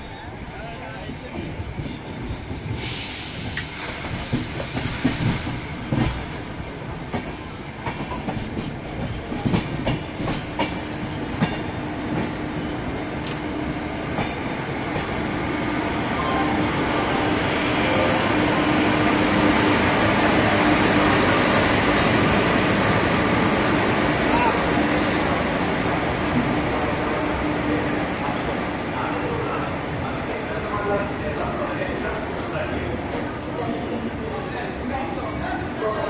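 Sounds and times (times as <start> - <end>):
train wheels clicking over rail joints: 1.3 - 15.2.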